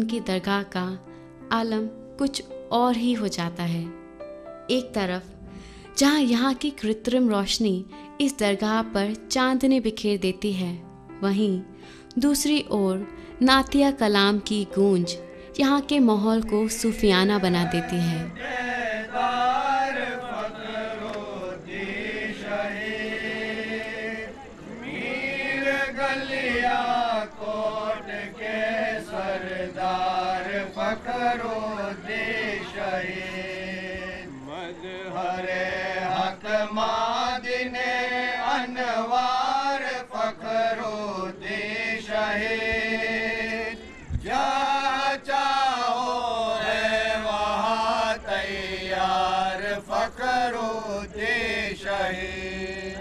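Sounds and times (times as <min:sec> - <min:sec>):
person chanting devotional song: 0:13.4 - 0:53.0.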